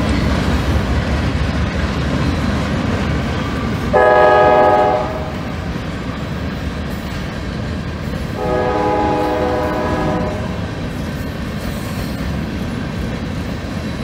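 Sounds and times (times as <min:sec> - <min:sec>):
freight cars rumbling over track: 0:00.0 - 0:14.0
locomotive horn blast: 0:03.9 - 0:05.5, 0:08.4 - 0:10.7.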